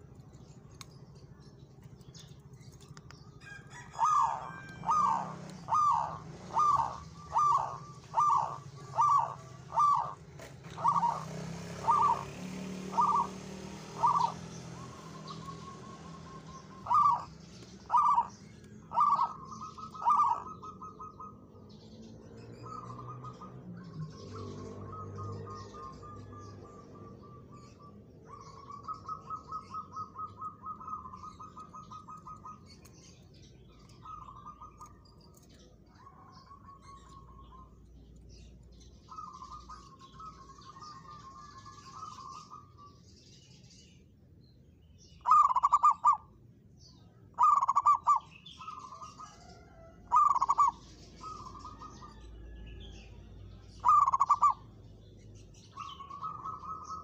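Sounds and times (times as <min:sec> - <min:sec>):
small birds chirping: 0:00.0 - 0:57.0
dove cooing: 0:03.4 - 0:21.5, 0:22.5 - 0:32.9, 0:45.2 - 0:46.3, 0:47.4 - 0:52.3, 0:53.8 - 0:54.7, 0:55.7 - 0:57.0.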